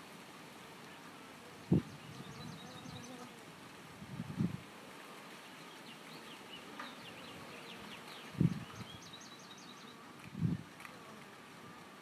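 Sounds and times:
small birds chirping: 0:01.7 - 0:03.3, 0:05.3 - 0:10.1
bees buzzing past: 0:06.0 - 0:09.0.

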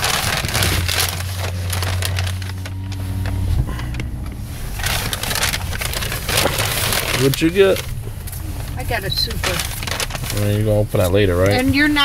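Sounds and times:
paper bag crinkling: 0:00.0 - 0:11.9
car engine hum: 0:00.0 - 0:12.0.

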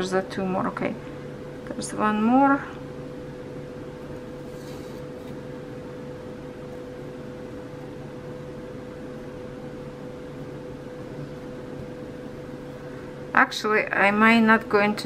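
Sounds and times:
background hum: 0:00.0 - 0:15.0.

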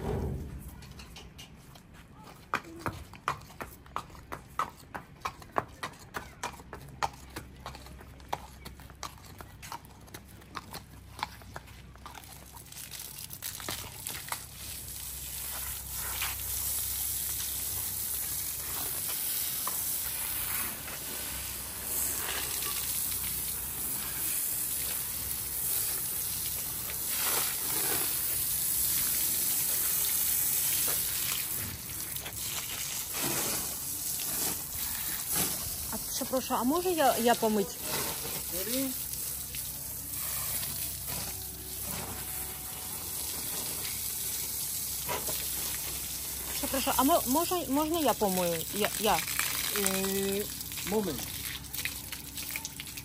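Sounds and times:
horse hooves clip-clopping on paving: 0:01.0 - 0:42.2, 0:42.9 - 0:53.0
water splashing on paving: 0:12.1 - 0:42.2, 0:42.8 - 0:53.0
garden hose spraying water: 0:12.2 - 0:53.0.

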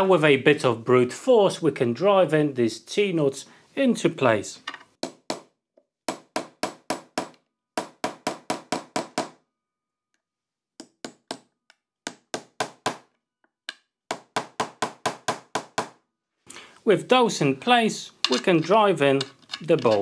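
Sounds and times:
hammer striking metal nuts: 0:18.2 - 0:20.0.

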